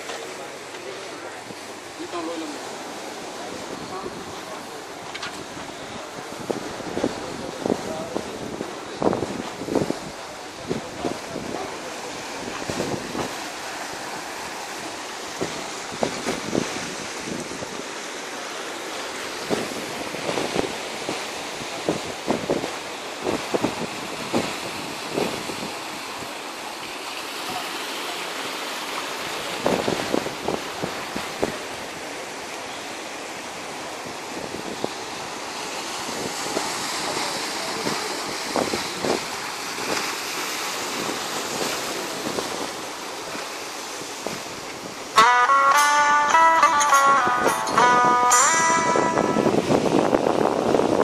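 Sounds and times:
surf washing over rocks: 0:00.0 - 0:51.0
wind on microphone: 0:05.2 - 0:11.7, 0:12.4 - 0:13.4, 0:15.3 - 0:17.8, 0:19.4 - 0:25.8, 0:29.6 - 0:31.8, 0:35.9 - 0:40.2, 0:46.2 - 0:51.0
plucked guitar music: 0:45.2 - 0:50.2.

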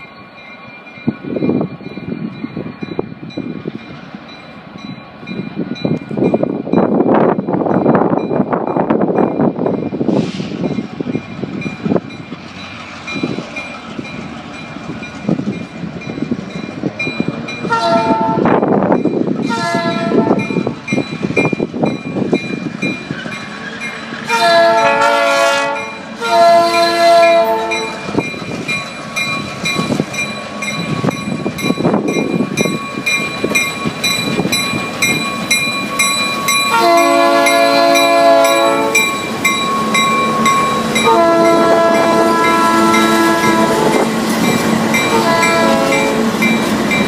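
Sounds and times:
locomotive engines rumbling: 0:00.0 - 0:47.0
train wheels rumbling: 0:00.0 - 0:47.0
train air horn blasts: 0:17.6 - 0:18.6, 0:19.5 - 0:20.4, 0:24.2 - 0:28.2, 0:36.7 - 0:39.1, 0:41.0 - 0:44.1, 0:45.1 - 0:46.4.

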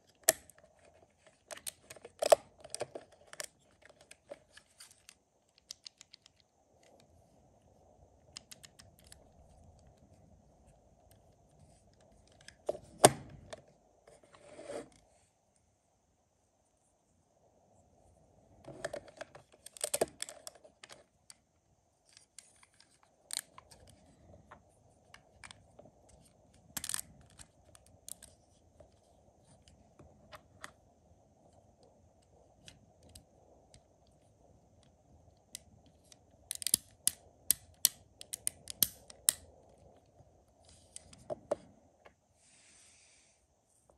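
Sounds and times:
plastic parts clicking and snapping: 0:00.1 - 0:07.1, 0:08.3 - 0:09.9, 0:18.7 - 0:21.4, 0:22.1 - 0:24.0, 0:25.1 - 0:28.4, 0:35.5 - 0:39.4.

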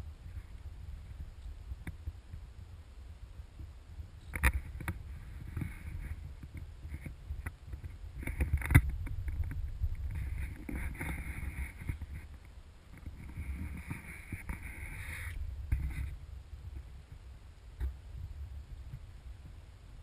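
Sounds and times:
low wind rumble: 0:00.0 - 0:20.0
camera handling knocks and rubbing: 0:13.0 - 0:16.1.

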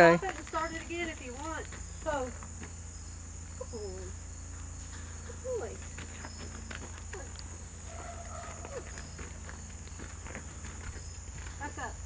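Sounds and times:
horse footsteps on sandy dirt: 0:00.0 - 0:12.0
insects chirring: 0:00.0 - 0:12.0
person footsteps on sandy dirt: 0:04.8 - 0:12.0.

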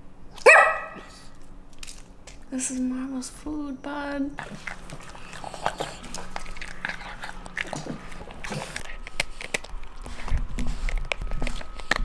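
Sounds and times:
dog gnawing chew stick: 0:01.1 - 0:02.5, 0:04.4 - 0:12.0
dog eating wet food: 0:04.4 - 0:12.0.

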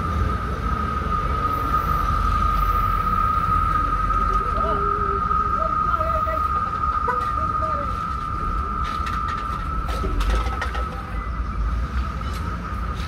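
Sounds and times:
high-pitched whine: 0:00.0 - 0:13.0
low rumble: 0:00.0 - 0:13.0.

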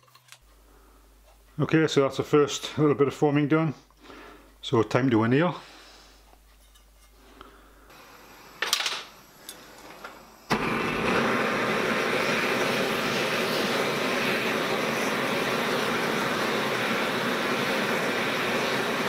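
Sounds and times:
gas blowtorch whooshing and burning: 0:07.9 - 0:19.0.

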